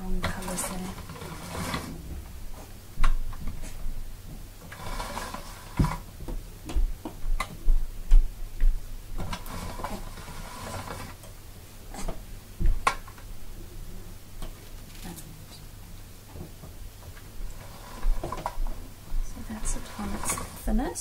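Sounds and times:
hand-cranked pasta machine rolling: 0:00.0 - 0:02.1, 0:04.6 - 0:06.2, 0:09.2 - 0:11.3, 0:17.5 - 0:21.0.

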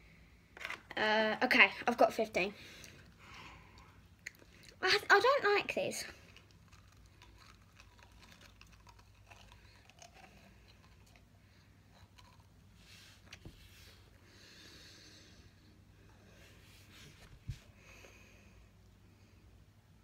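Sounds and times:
faint breathing: 0:02.5 - 0:04.8, 0:13.8 - 0:19.6
mouth clicks while chewing: 0:06.3 - 0:11.3.

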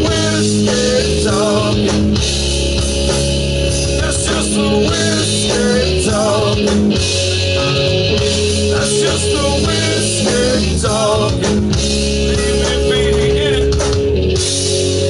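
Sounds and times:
rock band playing live: 0:00.0 - 0:15.0
wavering lead guitar line: 0:00.0 - 0:15.0.

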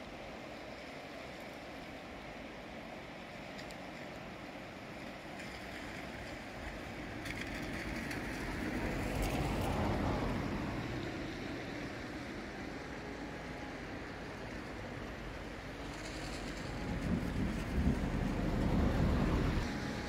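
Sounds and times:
river rushing: 0:00.0 - 0:20.0
low rumble: 0:13.4 - 0:20.0.

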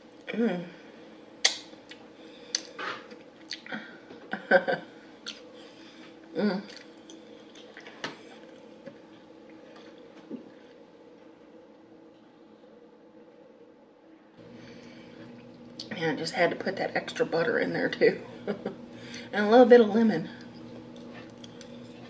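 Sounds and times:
lip smacks and clicks: 0:01.4 - 0:02.7
wet chewing and squelching: 0:06.7 - 0:09.0.

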